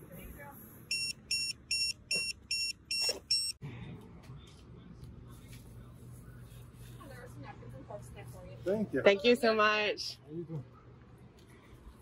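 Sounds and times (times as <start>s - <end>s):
pager high-pitched beeps: 0.9s - 3.6s.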